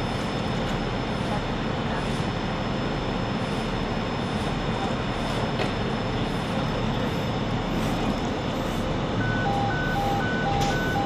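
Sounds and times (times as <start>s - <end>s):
engine or traffic rumble: 2.7s - 11.0s
two-tone electronic beeper: 9.2s - 11.0s.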